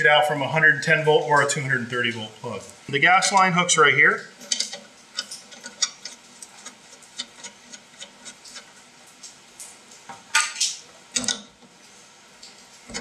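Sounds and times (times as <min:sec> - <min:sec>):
hose fitting clicking: 0:04.4 - 0:08.7, 0:10.4 - 0:11.5.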